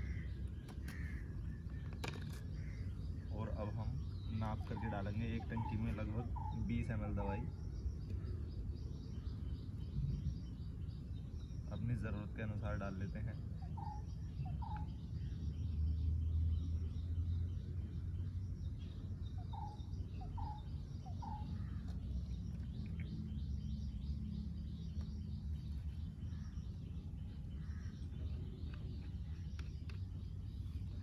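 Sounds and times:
birds calling: 0.0s - 31.0s
steady low rumble: 0.0s - 31.0s
bird chirps rising: 2.8s - 29.1s.

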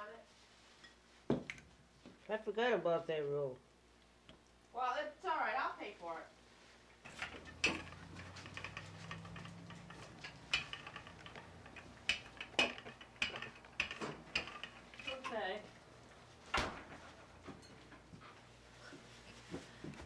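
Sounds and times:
sharp clicks and knocks: 7.1s - 15.4s.

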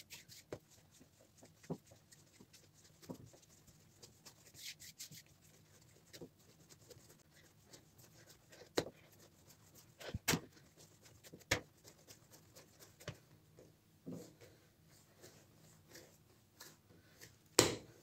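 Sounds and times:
dough kneading thumps: 5.4s - 13.3s.

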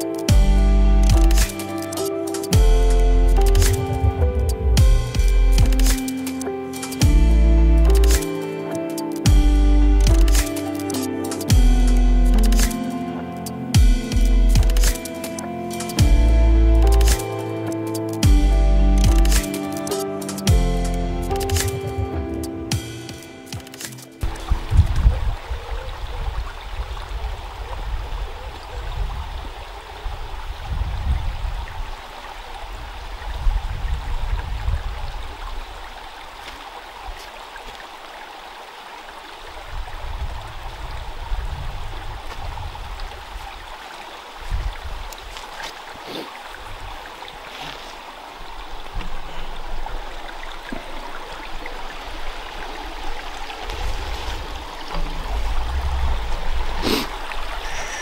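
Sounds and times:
stream running over stones: 19.1s - 58.0s
low rumble on microphone: 53.7s - 56.8s.

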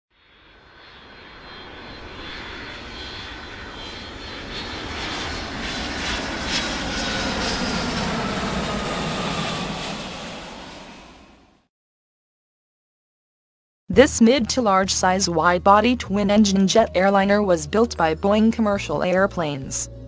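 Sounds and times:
jet airliner passing overhead: 0.2s - 11.7s.

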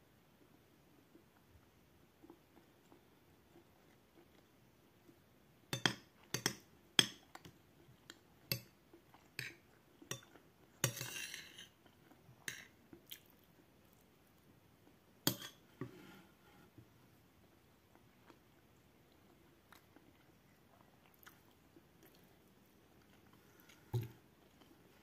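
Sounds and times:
chewing: 2.2s - 5.2s, 7.2s - 15.6s, 17.9s - 25.0s.

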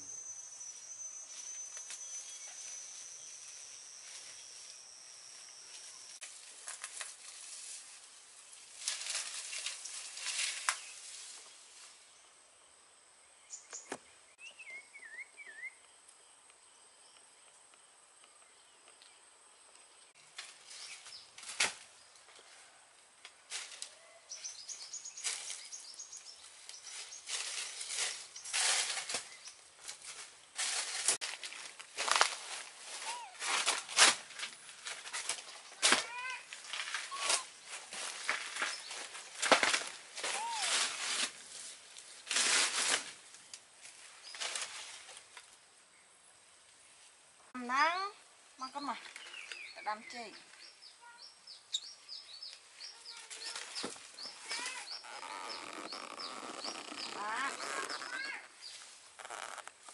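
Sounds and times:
dry leaves rustling and crunching: 1.3s - 12.0s, 20.2s - 22.0s, 23.5s - 45.5s, 52.7s - 59.9s
insects trilling: 49.8s - 59.9s.

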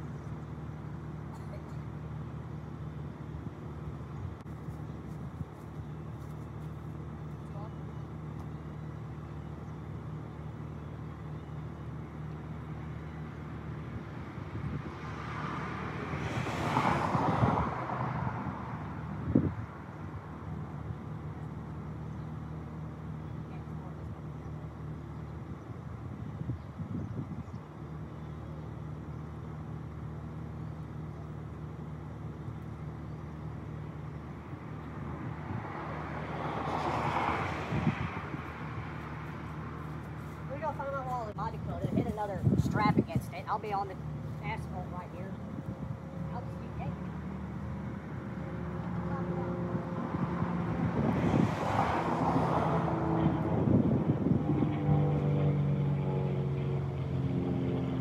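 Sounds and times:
engine idling: 0.0s - 14.4s
vehicle passing: 12.3s - 25.1s, 28.7s - 58.0s.

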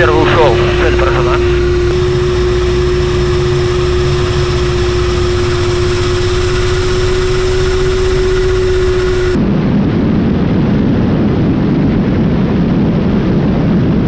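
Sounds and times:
constant humming tone: 0.0s - 14.0s
helicopter engine and rotor noise: 0.0s - 14.0s.

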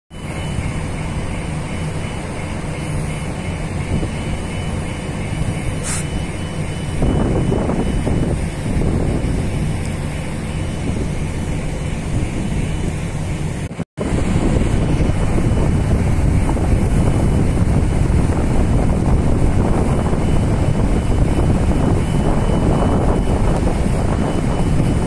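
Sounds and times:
faint machinery whines: 0.1s - 25.0s
ship engines droning: 0.1s - 25.0s
wind on microphone: 5.2s - 13.2s, 14.0s - 25.0s.

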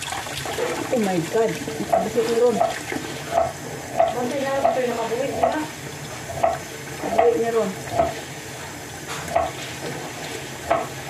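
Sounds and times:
water sloshing and dripping: 0.0s - 11.0s.

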